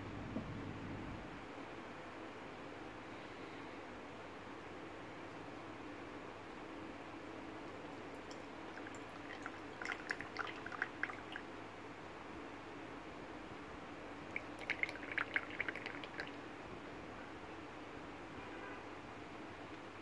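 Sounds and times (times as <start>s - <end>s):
tea dripping into pitcher: 7.9s - 11.5s, 14.3s - 16.4s.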